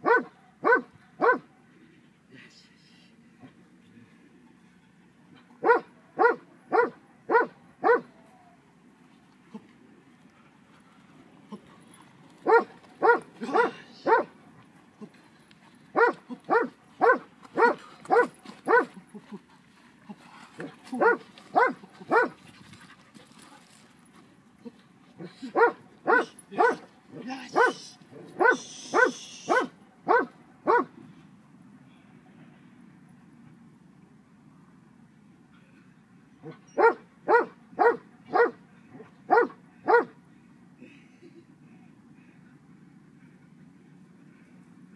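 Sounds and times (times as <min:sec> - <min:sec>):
dog barking: 0:00.0 - 0:01.7, 0:05.6 - 0:08.1, 0:12.4 - 0:14.3, 0:16.0 - 0:18.9, 0:21.0 - 0:22.4, 0:25.5 - 0:26.9, 0:27.6 - 0:27.8, 0:28.4 - 0:30.9, 0:36.4 - 0:38.6, 0:39.3 - 0:40.1.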